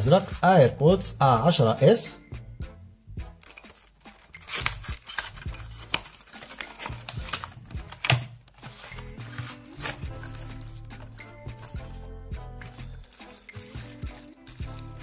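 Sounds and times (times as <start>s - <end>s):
background music: 0.0s - 15.0s
cardboard box being opened: 3.5s - 11.7s.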